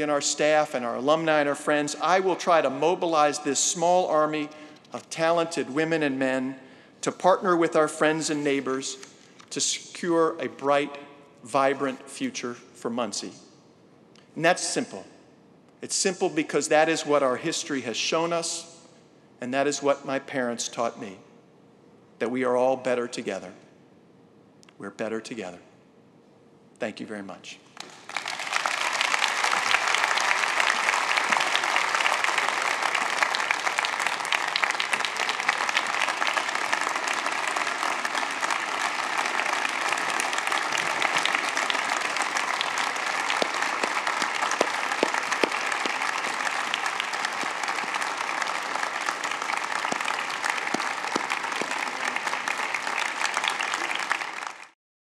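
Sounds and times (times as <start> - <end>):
audience applauding: 27.8 - 54.8.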